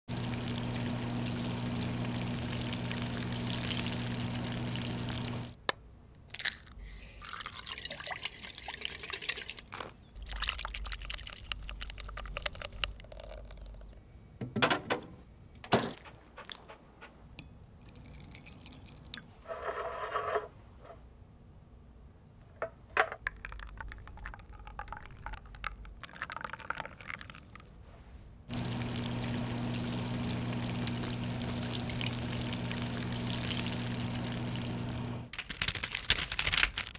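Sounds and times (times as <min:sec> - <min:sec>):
hot oil sizzling: 0:00.1 - 0:05.6, 0:28.5 - 0:35.3
liquid pouring: 0:00.1 - 0:05.6, 0:07.2 - 0:13.9, 0:17.7 - 0:19.3, 0:23.2 - 0:27.7, 0:28.5 - 0:35.3
oven fan humming: 0:00.1 - 0:05.6, 0:28.5 - 0:35.3
kitchen clicks and knocks: 0:14.4 - 0:16.0.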